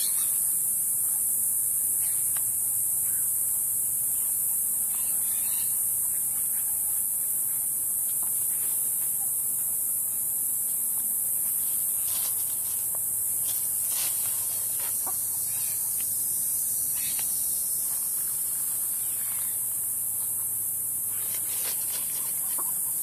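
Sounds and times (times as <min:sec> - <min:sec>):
steady high hiss: 0:00.0 - 0:23.0
hen clucking: 0:14.7 - 0:16.0, 0:22.1 - 0:23.0.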